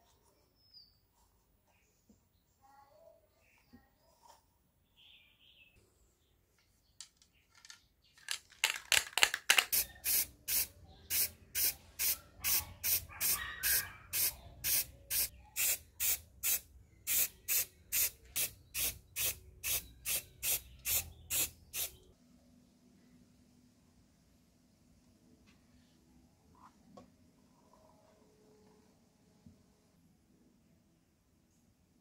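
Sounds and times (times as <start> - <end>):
spray paint can hissing: 9.5 - 22.0.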